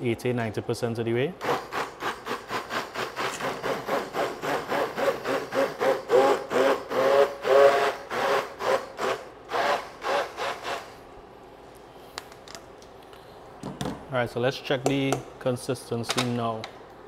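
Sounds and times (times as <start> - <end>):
immersion blender whirring: 1.4 - 10.9.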